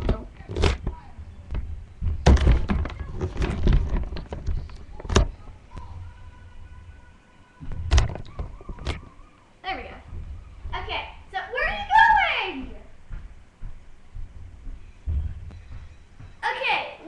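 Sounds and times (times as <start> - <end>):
camera handling thuds and knocks: 2.0 - 5.3.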